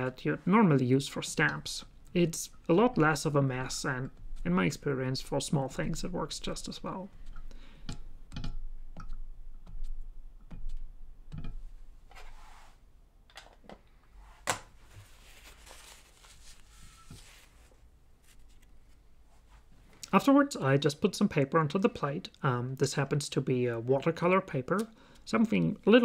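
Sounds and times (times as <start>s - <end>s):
soft rustling: 12.0s - 12.9s, 14.1s - 20.1s.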